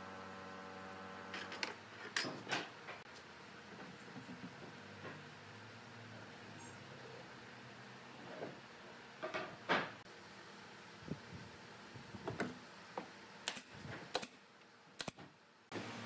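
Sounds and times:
nail gun firing: 0:13.4 - 0:14.4, 0:15.0 - 0:15.3.

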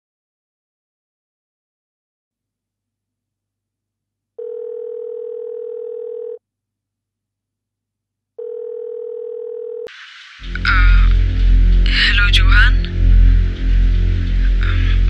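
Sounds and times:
telephone ringback tone: 0:04.4 - 0:06.4, 0:08.4 - 0:09.9
line hiss: 0:09.9 - 0:15.0
low hum: 0:10.0 - 0:15.0.

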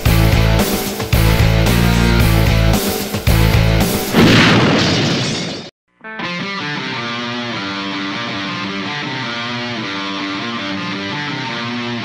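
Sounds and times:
heavy rock electric guitar: 0:06.2 - 0:12.0.

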